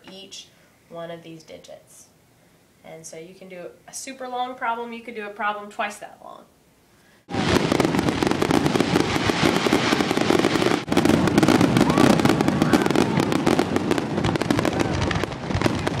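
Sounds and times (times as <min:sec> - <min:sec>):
fireworks crackling and popping: 0:07.2 - 0:16.0.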